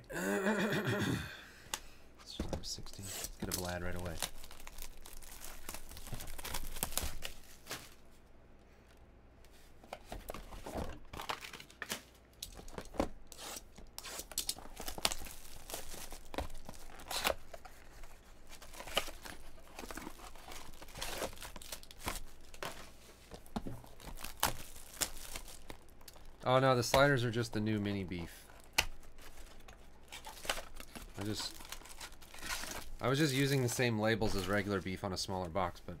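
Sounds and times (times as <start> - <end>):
plastic shrink wrap tearing: 2.9 - 8.0, 18.6 - 22.6, 23.9 - 26.5, 28.6 - 33.5.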